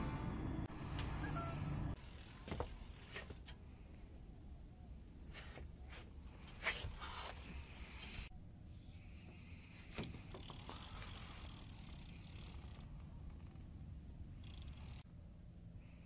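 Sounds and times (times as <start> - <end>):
low steady rumble: 0.0 - 2.0, 12.6 - 16.0
fishing reel rattling and clicking: 10.3 - 12.9, 14.4 - 15.0.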